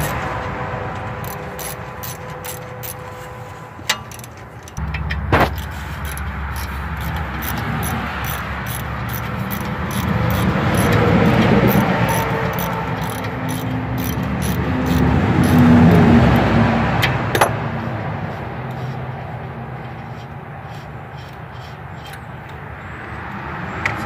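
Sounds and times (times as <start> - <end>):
ratchet wrench clicking: 1.2 - 3.0, 3.8 - 16.5, 18.7 - 19.0, 19.9 - 22.6.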